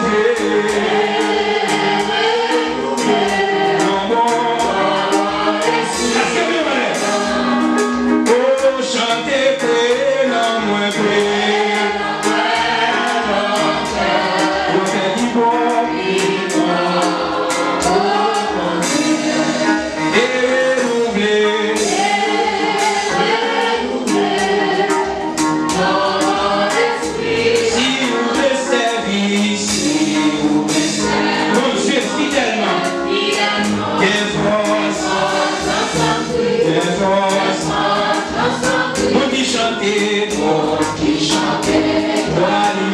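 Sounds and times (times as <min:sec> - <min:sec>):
man singing into microphone: 0:00.0 - 0:01.1, 0:03.6 - 0:07.3, 0:08.2 - 0:12.0, 0:14.4 - 0:22.4, 0:27.7 - 0:30.8, 0:31.4 - 0:33.0, 0:34.0 - 0:35.4, 0:36.6 - 0:37.7, 0:39.0 - 0:41.4, 0:42.3 - 0:42.9
group of voices singing: 0:00.0 - 0:42.9
steady beat: 0:00.0 - 0:42.9.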